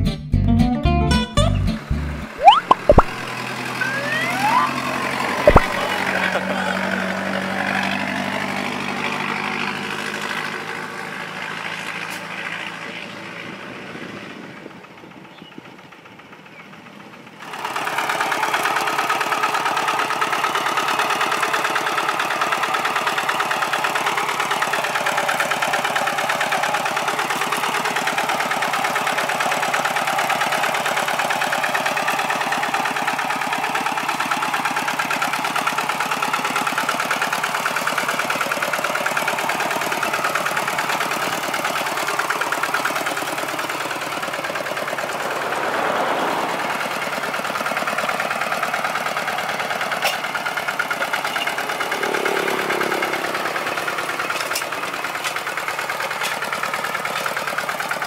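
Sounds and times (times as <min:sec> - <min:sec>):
truck engine passing: 0:01.8 - 0:14.4, 0:39.1 - 0:57.7
diesel tractor engine chugging: 0:03.2 - 0:58.0.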